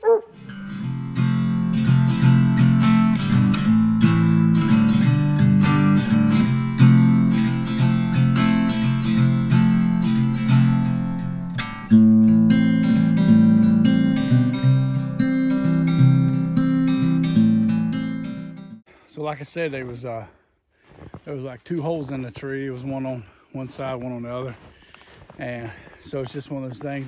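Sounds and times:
strummed acoustic guitar: 0.3 - 18.8.

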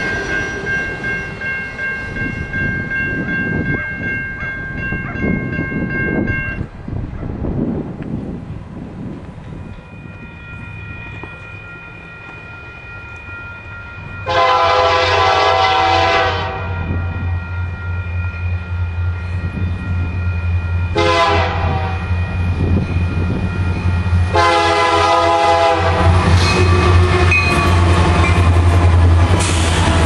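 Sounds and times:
train air horn blasts: 14.2 - 17.0, 20.9 - 22.2, 24.3 - 27.8.

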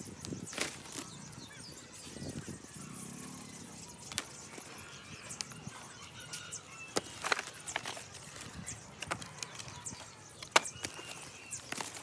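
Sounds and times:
plastic phone clicks and cracks: 9.0 - 12.0.

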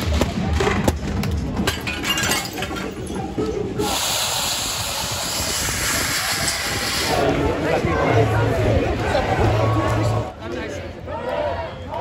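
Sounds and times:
voices: 2.8 - 12.0
hissy street noise: 3.0 - 12.0.

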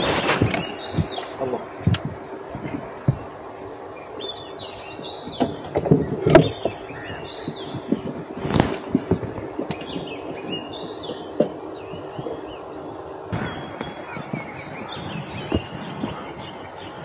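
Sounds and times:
birds singing: 0.0 - 17.0
knocks and clicks on boat deck: 0.4 - 3.4, 5.2 - 12.5, 13.4 - 16.5.

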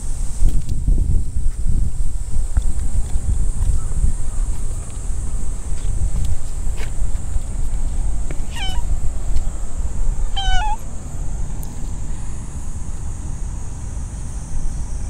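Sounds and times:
cat meowing: 8.5 - 8.9, 10.2 - 10.8.

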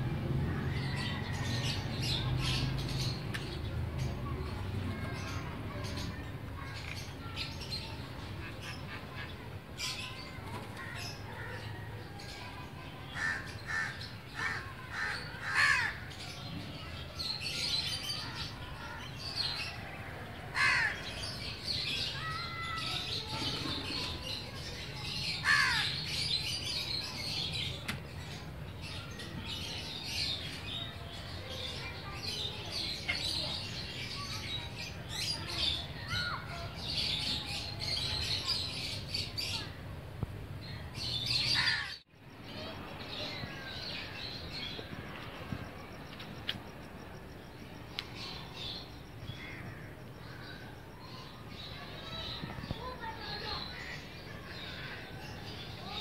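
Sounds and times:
small birds chirping: 0.5 - 56.0
crows cawing: 13.2 - 16.0, 20.5 - 21.1, 25.4 - 26.0.

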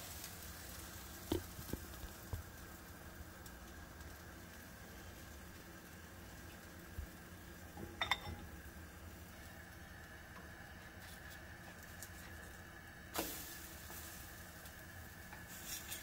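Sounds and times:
faint steady hum: 0.0 - 16.0
utensils clinking against a bowl: 7.9 - 8.5.

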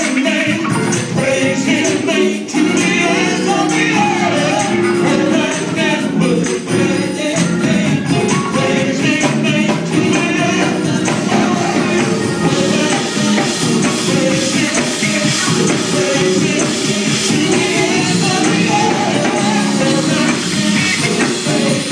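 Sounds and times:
drum kit: 0.0 - 21.9
guitar: 0.0 - 21.9
man singing into a microphone: 0.0 - 21.9.

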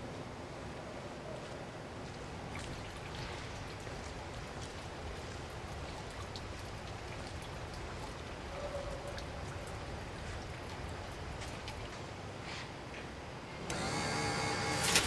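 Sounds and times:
low rumble and hiss: 0.0 - 13.8
water dripping: 2.0 - 12.3.

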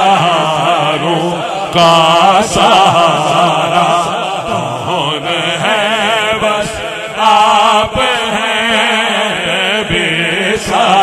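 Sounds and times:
man singing through microphone: 0.0 - 11.0.

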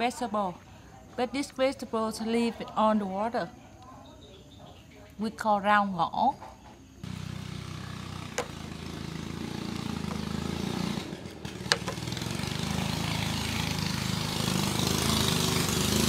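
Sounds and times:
small engine humming: 7.0 - 16.0.

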